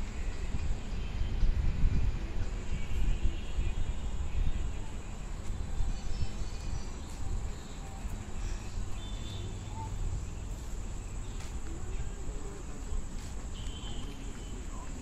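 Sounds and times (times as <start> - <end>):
crickets trilling: 4.0 - 15.0.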